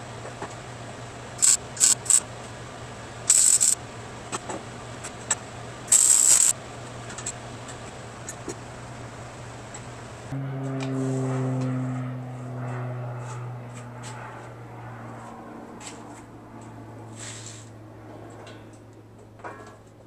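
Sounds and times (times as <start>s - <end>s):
steady low hum: 0.0s - 20.0s
welder crackling bursts: 1.4s - 2.3s, 3.3s - 3.8s, 5.9s - 6.6s.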